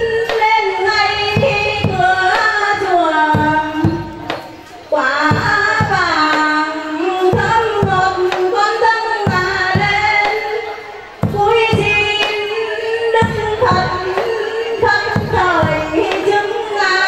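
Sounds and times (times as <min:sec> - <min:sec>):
low drum beats: 0:00.0 - 0:04.5, 0:11.1 - 0:16.6.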